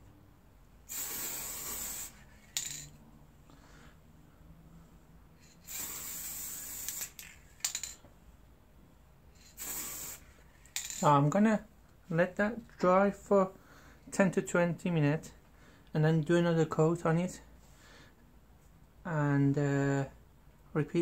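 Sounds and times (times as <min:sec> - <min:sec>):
aerosol spray can hissing: 0:00.9 - 0:02.4, 0:05.4 - 0:07.3, 0:09.4 - 0:10.4.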